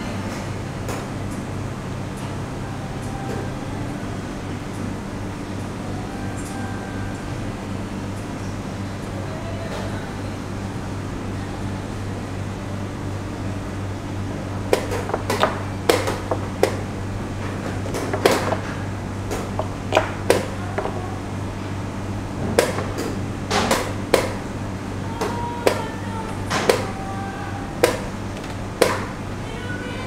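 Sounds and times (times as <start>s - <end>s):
chess pieces clacking on board: 17.9s - 18.7s, 19.5s - 21.0s.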